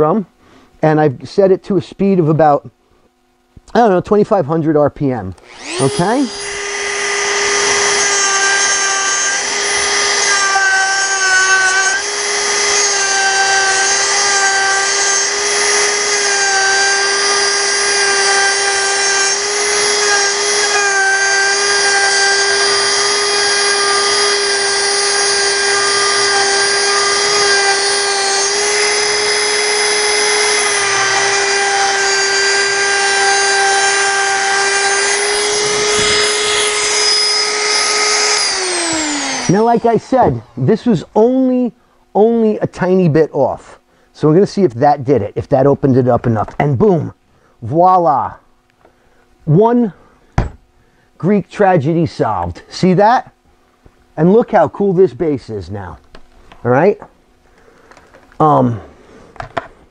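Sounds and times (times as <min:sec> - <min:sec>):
rotary tool sanding wood: 0:05.4 - 0:41.0.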